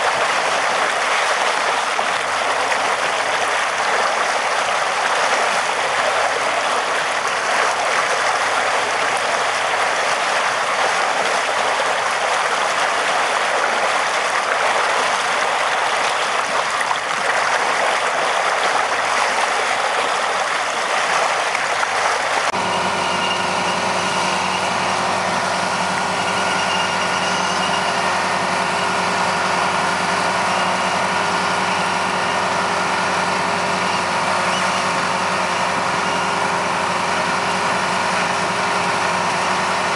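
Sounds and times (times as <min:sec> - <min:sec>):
slurry gushing from a pipe: 0:00.0 - 0:22.5
boat engine running: 0:00.0 - 0:39.9.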